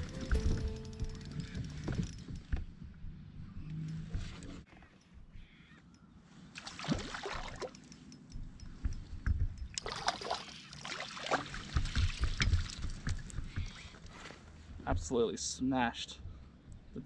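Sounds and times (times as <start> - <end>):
gear knocking against hull: 0.0 - 4.5.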